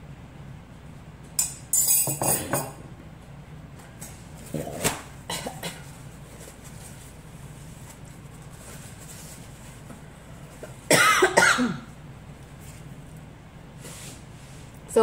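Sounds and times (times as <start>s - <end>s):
woman coughing: 5.3s - 5.8s, 10.9s - 11.9s.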